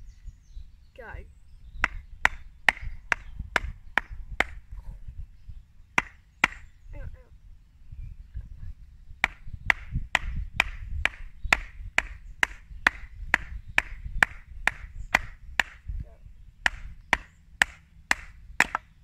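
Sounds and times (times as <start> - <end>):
mallet striking axe head: 6.0 - 6.6, 16.6 - 18.9.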